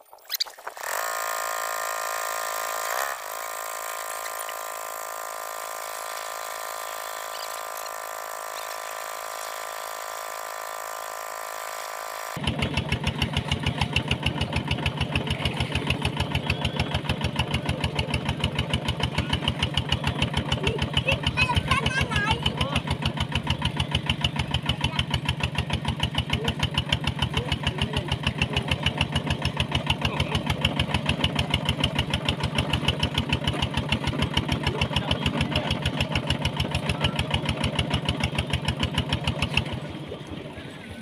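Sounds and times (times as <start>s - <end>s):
engine running: 0.0s - 41.0s
fast chugging beat: 12.4s - 39.4s.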